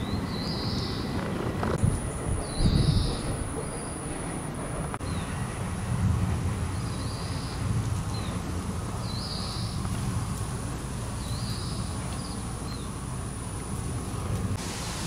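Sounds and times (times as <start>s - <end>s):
low rumble: 1.4s - 9.0s.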